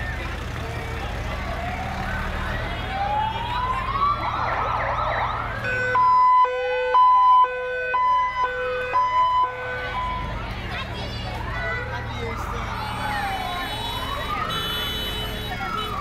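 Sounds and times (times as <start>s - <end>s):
wailing sirens: 1.0s - 10.3s, 11.9s - 16.0s
two-tone siren: 1.5s - 10.2s, 12.4s - 16.0s.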